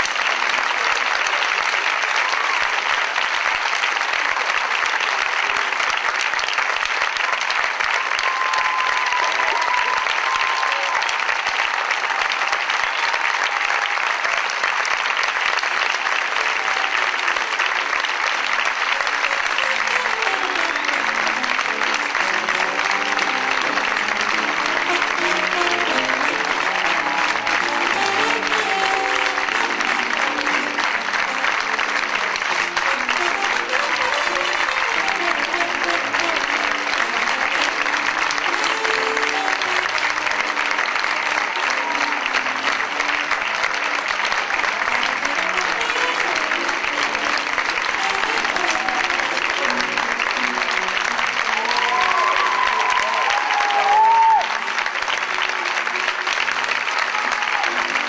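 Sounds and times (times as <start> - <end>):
audience applauding: 0.0 - 58.0
music: 4.9 - 58.0.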